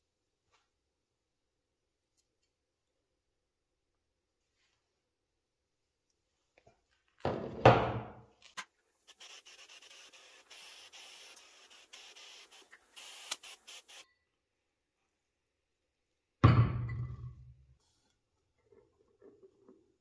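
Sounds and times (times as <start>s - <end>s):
faint rubbing with small clicks: 8.4s - 14.0s.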